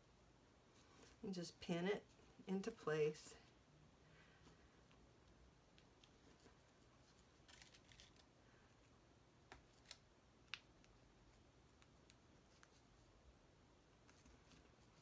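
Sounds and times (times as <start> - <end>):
light velcro clicks: 7.4 - 8.3.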